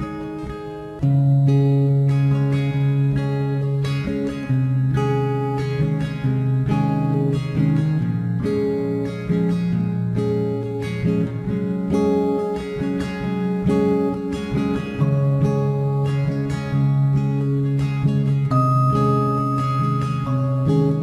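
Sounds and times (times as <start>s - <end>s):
acoustic guitar music: 0.0s - 21.0s.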